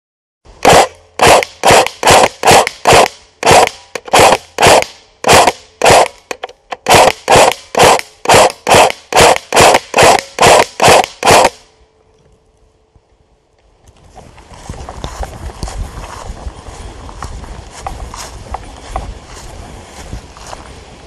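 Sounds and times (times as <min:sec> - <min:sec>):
airsoft rifle firing single shots: 0:00.6 - 0:11.6.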